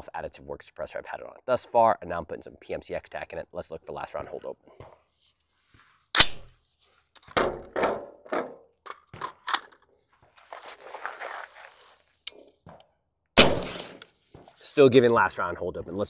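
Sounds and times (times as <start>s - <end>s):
suppressed rifle shot: 13.4s - 14.0s.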